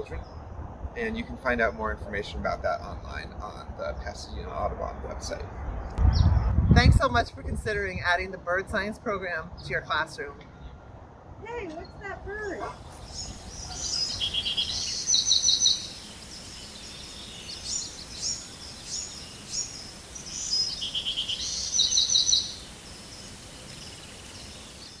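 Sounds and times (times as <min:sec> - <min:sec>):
steady background hiss: 0:07.8 - 0:25.0
songbird singing trills: 0:11.5 - 0:25.0.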